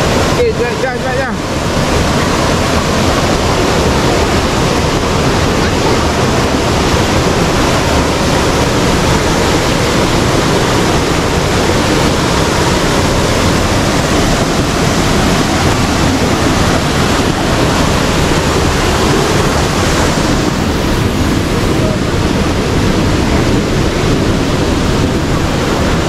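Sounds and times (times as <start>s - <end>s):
stream rushing over boulders: 0.0s - 26.0s.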